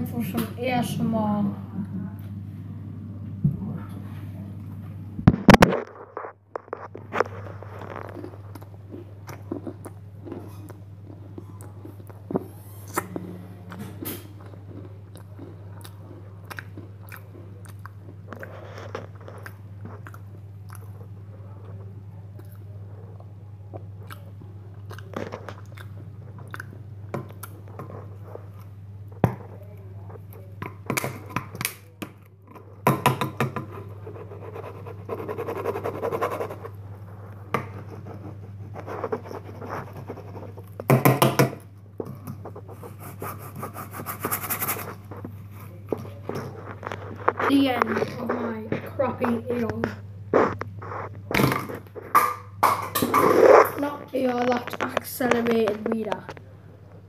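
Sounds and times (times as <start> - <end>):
steady low hum: 0.0 - 57.0
crunching and chewing cracker: 5.7 - 13.0, 14.4 - 29.5.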